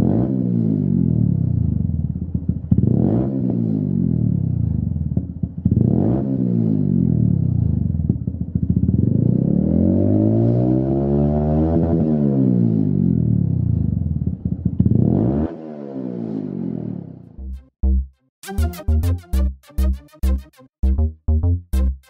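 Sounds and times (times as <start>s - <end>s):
motorcycle engine revving: 0.0s - 17.4s.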